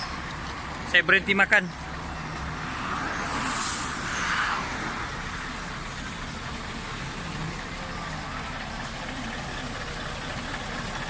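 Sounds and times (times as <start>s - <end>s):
diesel truck engine idling: 0.0s - 11.0s
brief hiss: 3.2s - 4.2s.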